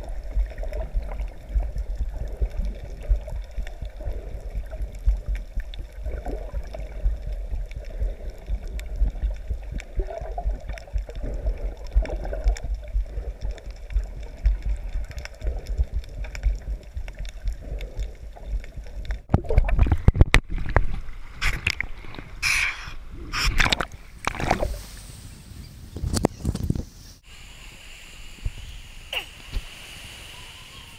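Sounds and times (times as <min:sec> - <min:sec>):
muffled underwater gurgling: 0:00.0 - 0:24.7
water splashing and sloshing: 0:00.0 - 0:25.2.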